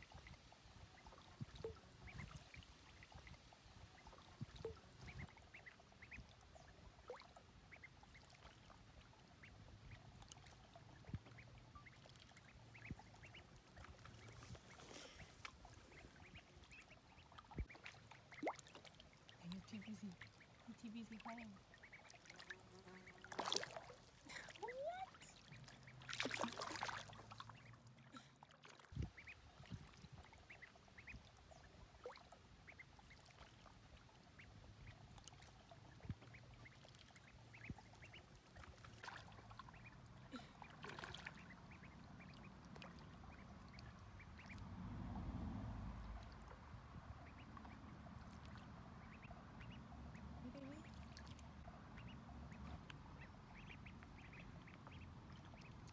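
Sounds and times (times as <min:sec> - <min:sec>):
ducklings peeping: 0:00.0 - 0:28.0, 0:29.0 - 0:44.7, 0:46.0 - 0:55.9
water splashes: 0:01.1 - 0:55.9
low rumble: 0:42.0 - 0:50.5.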